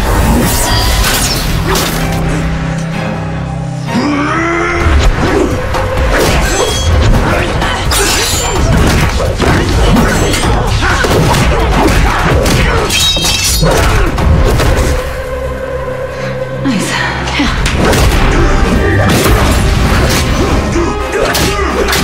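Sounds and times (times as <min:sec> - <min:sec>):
dramatic music score: 0:00.0 - 0:22.0
punches and thuds: 0:08.1 - 0:14.9.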